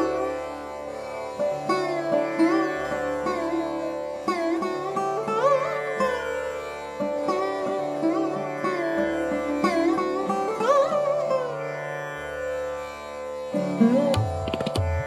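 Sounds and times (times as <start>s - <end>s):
string melody over drone: 0.0s - 15.0s
drum strokes: 14.1s - 15.0s.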